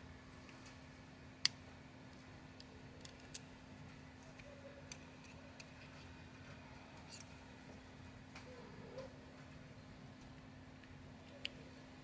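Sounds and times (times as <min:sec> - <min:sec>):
small metal clicks: 0:01.4 - 0:07.4.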